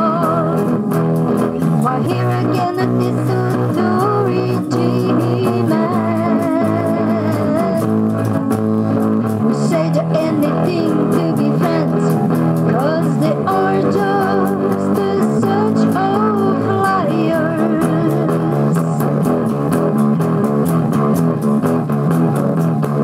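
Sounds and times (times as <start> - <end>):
woman singing: 0.0 - 0.8, 1.6 - 8.1, 9.4 - 19.2
electric guitar chords: 0.0 - 23.0.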